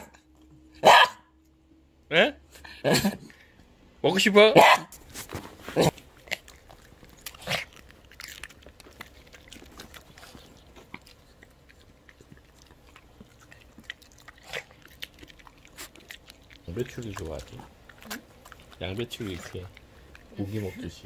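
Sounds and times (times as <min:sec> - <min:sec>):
dogs crunching cabbage: 0:04.2 - 0:21.0.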